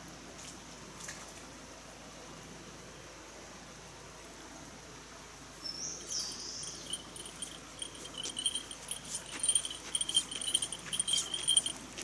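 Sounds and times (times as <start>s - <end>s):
small bell jingling: 6.0s - 12.0s
footsteps crunching on gravel: 8.0s - 12.0s.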